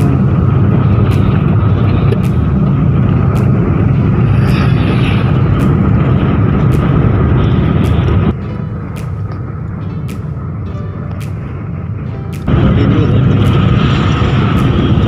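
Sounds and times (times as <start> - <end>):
car engine: 0.0 - 15.0
road noise: 0.0 - 15.0
wind noise in car cabin: 0.0 - 15.0.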